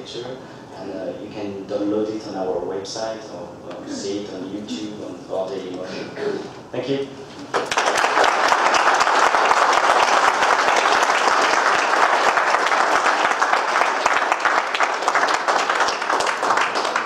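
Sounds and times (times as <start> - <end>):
audience applause: 7.5 - 17.0.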